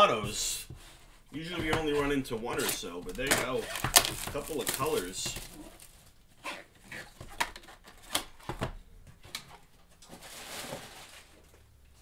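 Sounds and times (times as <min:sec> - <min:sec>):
cardboard boxes knocking on table: 0:01.4 - 0:02.1
soft scraping rustle: 0:10.0 - 0:11.7.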